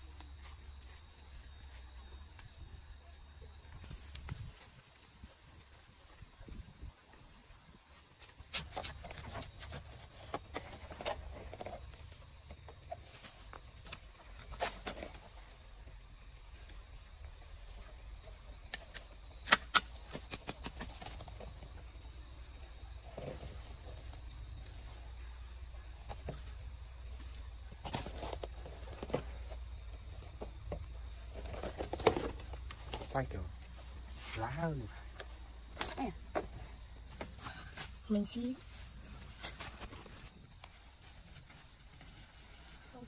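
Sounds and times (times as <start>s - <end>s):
high-pitched insect drone: 0.0s - 43.0s
sharp snaps and cracks: 18.7s - 21.1s.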